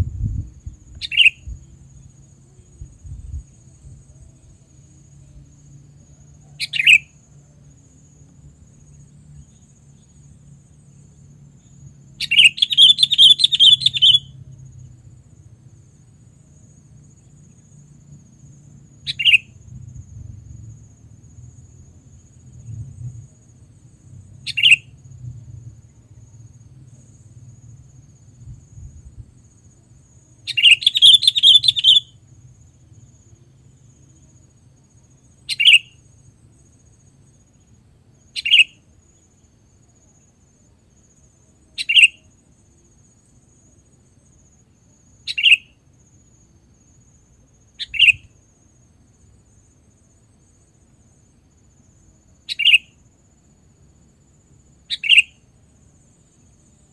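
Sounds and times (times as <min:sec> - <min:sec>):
bulbul chirping: 0:12.2 - 0:14.3, 0:30.5 - 0:32.1, 0:35.5 - 0:35.9, 0:54.9 - 0:55.3.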